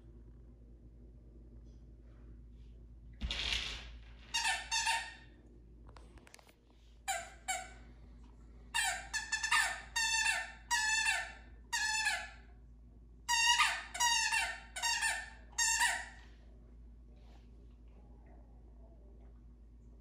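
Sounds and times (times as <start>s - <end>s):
squeaky dog toy squeaking: 4.3s - 5.3s, 7.1s - 7.8s, 8.8s - 12.4s, 13.3s - 16.2s.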